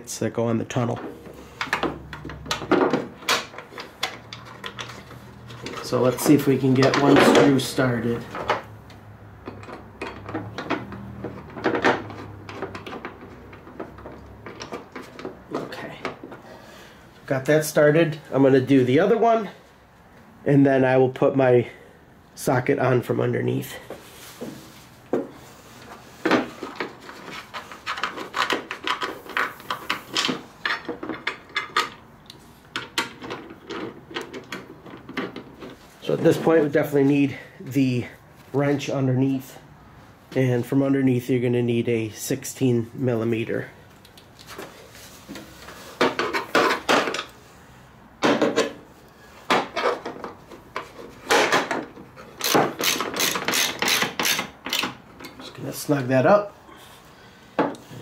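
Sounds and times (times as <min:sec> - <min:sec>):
hand tools clinking and scraping: 0:00.7 - 0:08.7
screw clicking and rubbing: 0:52.2 - 0:55.4.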